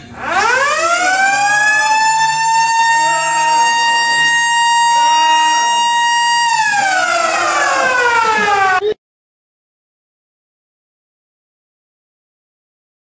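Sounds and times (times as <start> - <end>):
siren wailing: 0.0 - 9.0.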